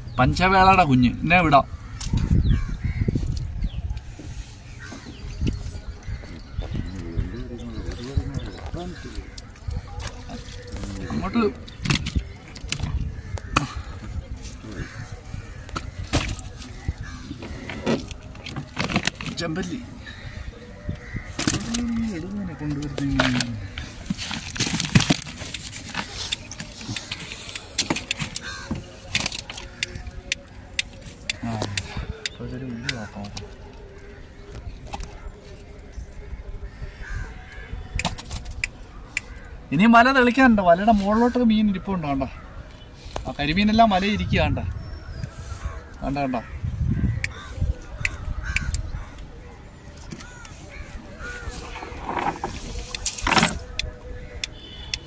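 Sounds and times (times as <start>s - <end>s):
birds calling: 0.0s - 55.0s
net and fish clicking and rattling: 9.2s - 13.4s, 15.5s - 20.3s, 21.0s - 32.2s, 37.9s - 39.4s, 49.9s - 54.6s.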